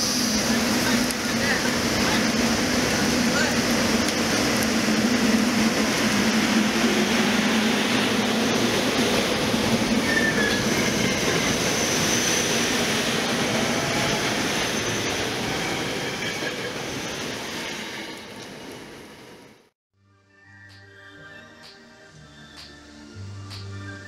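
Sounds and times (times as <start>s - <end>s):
train rolling on rails: 0.0s - 19.7s
faint wheel squeals: 10.0s - 10.6s.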